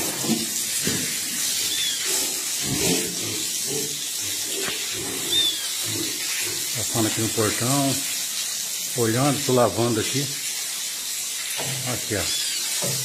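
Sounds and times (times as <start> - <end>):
water running from hose: 0.0 - 13.0.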